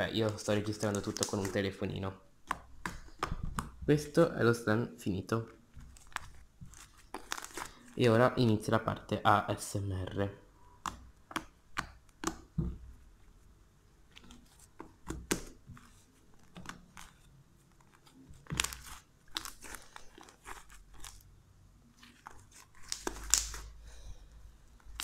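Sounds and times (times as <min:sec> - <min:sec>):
slime crackling and popping: 0:00.2 - 0:01.6, 0:05.9 - 0:07.8, 0:18.4 - 0:21.2, 0:22.5 - 0:23.7.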